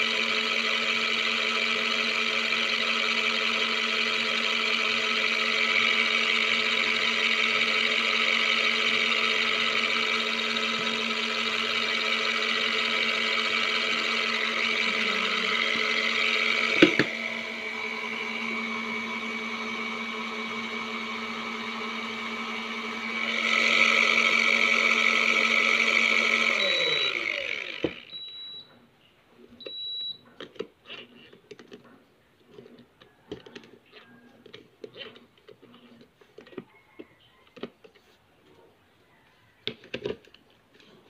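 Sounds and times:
washing machine motor humming: 0:00.0 - 0:28.6
short high beeps: 0:26.6 - 0:27.2, 0:28.1 - 0:28.6.

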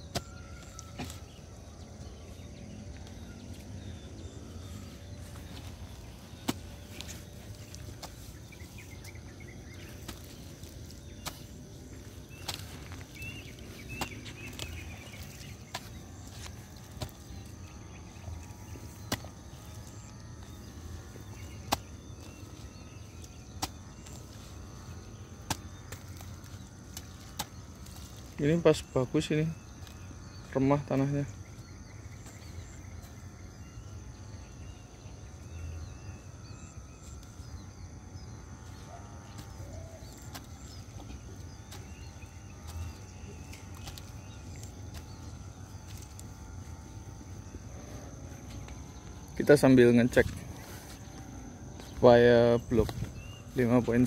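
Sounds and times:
hoe chopping wet soil: 0:00.0 - 0:01.4, 0:05.7 - 0:17.8, 0:18.5 - 0:20.6, 0:21.2 - 0:28.6.

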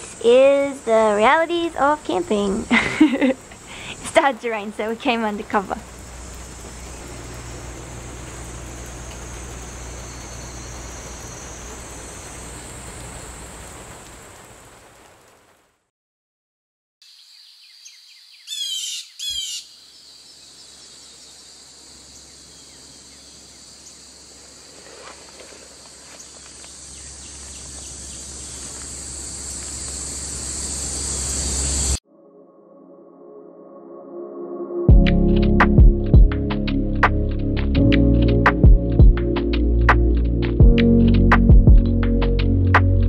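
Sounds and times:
insects chirring: 0:00.0 - 0:14.8, 0:17.0 - 0:32.0
steady rain hissing: 0:00.0 - 0:15.9, 0:19.8 - 0:32.0
loud bird calls: 0:17.5 - 0:24.1.

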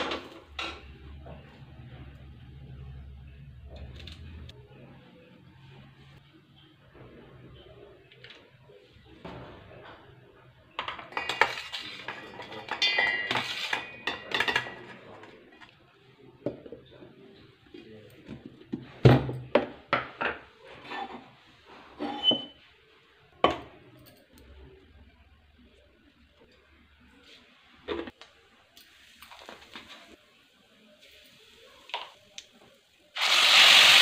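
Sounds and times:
metal kitchenware clattering: 0:09.2 - 0:15.7.

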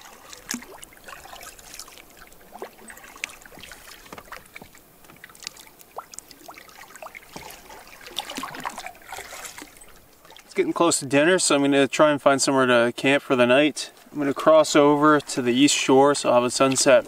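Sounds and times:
paddle dipping in water: 0:00.0 - 0:10.6, 0:13.9 - 0:17.0
water drips and splashes: 0:00.0 - 0:10.6, 0:16.5 - 0:17.0.

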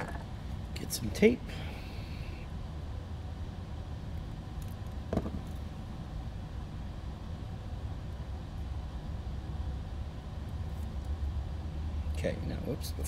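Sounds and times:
low background rumble: 0:00.0 - 0:13.0.

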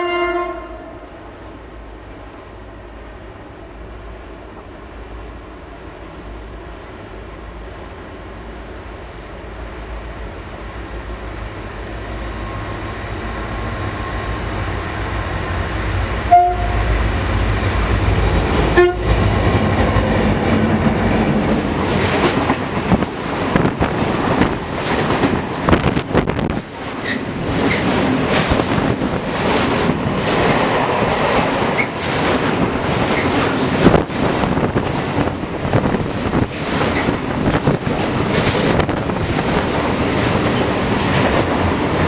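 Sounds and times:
train horn blasts: 0:00.0 - 0:01.1, 0:16.3 - 0:17.0, 0:18.7 - 0:19.3
freight train rumble: 0:00.0 - 0:42.0.

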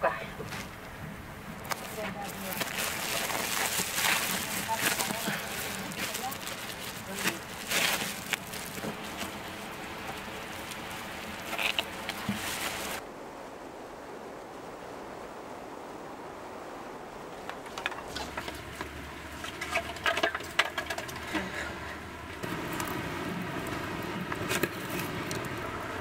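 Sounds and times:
plastic sack rustling: 0:01.6 - 0:13.0.

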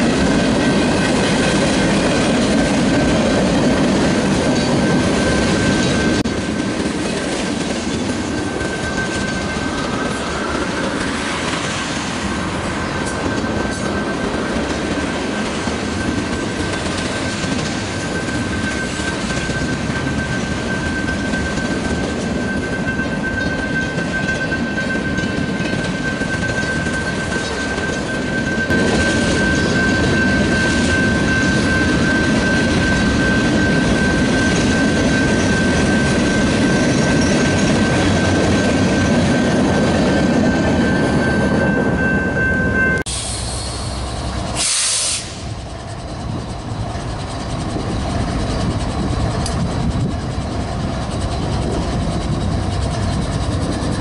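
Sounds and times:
freight train rumble: 0:00.0 - 0:54.0
train wheel squeal: 0:00.0 - 0:54.0
brief hiss: 0:43.1 - 0:45.5.

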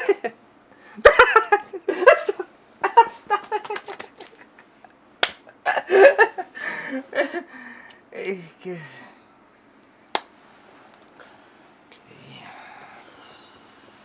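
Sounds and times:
laughter: 0:01.0 - 0:07.5
wordless vocal sounds: 0:11.9 - 0:13.7.

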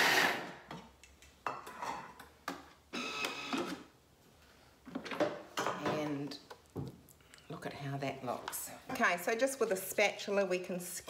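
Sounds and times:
blender blade burst: 0:00.0 - 0:00.5.

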